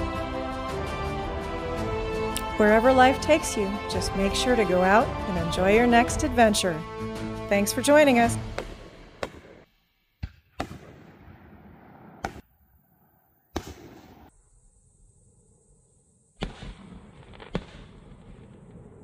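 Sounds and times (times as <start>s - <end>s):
fireworks bursting with bangs: 8.5s - 12.5s, 13.5s - 14.3s, 16.4s - 19.0s.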